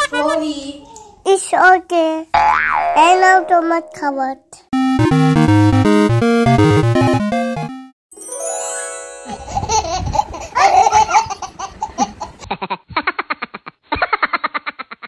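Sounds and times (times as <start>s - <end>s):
young child laughing: 0.0s - 1.2s, 9.2s - 15.0s
musical tones: 3.3s - 4.1s, 4.8s - 9.9s
synthesized music: 4.8s - 9.6s
baby laughing: 9.2s - 13.7s.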